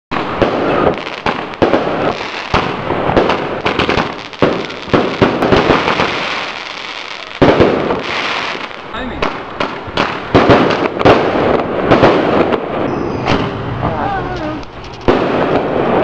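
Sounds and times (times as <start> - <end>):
firework shells bursting: 0.1 - 16.0
crackle and hiss of sparks: 0.2 - 8.8, 13.3 - 16.0.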